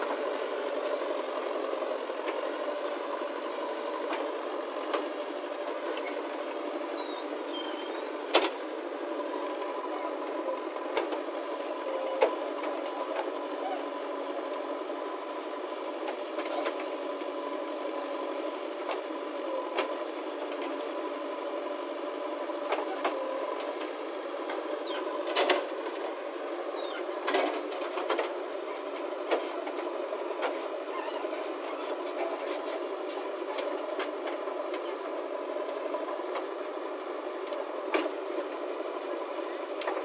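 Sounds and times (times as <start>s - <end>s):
short squeaks: 6.8s - 8.2s, 24.8s - 25.2s, 26.5s - 27.2s.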